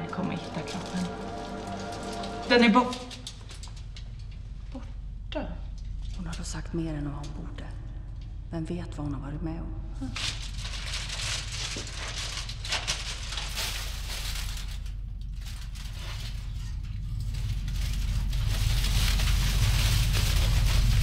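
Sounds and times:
low rumbling drone: 0.0s - 4.2s, 13.5s - 21.0s
metallic foil crinkling: 0.0s - 4.5s, 10.0s - 21.0s.

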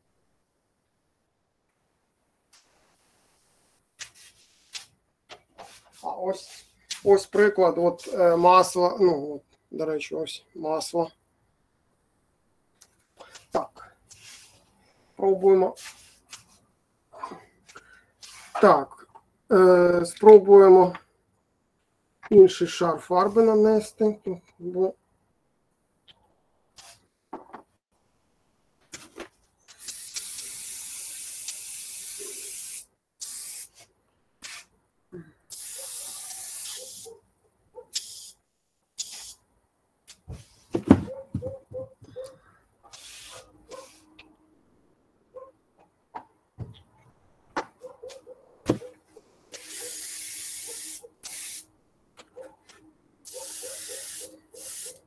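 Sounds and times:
airbrush spraying hiss: 29.7s - 34.7s, 35.5s - 37.1s, 38.0s - 38.4s, 39.0s - 39.4s, 42.9s - 44.1s, 49.5s - 51.7s, 53.2s - 55.0s.

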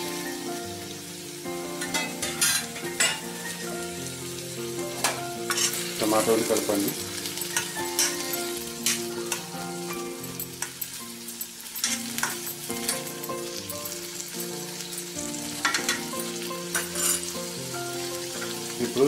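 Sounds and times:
tomatoes sizzling in oil: 0.0s - 19.0s
metal spoon scraping a pan: 1.8s - 3.6s, 4.9s - 17.6s.

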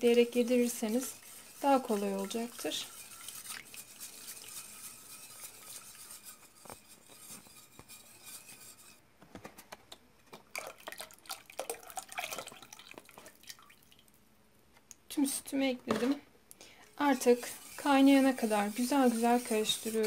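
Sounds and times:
whisk scraping a metal pot: 0.0s - 9.0s, 17.0s - 20.0s.

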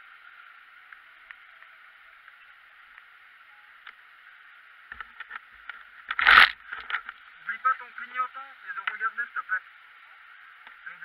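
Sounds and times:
faint steady hiss: 0.0s - 11.0s
light ticks: 10.6s - 10.8s.

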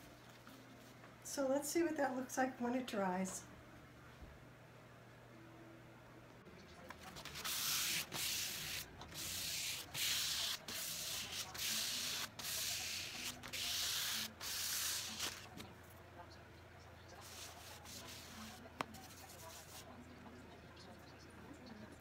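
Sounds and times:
hand sanding wood: 7.2s - 15.5s, 17.2s - 19.8s.

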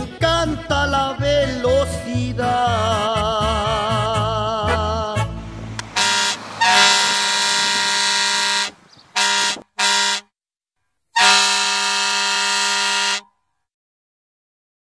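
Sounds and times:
truck air horn blasts: 4.0s - 10.3s, 11.2s - 13.4s.

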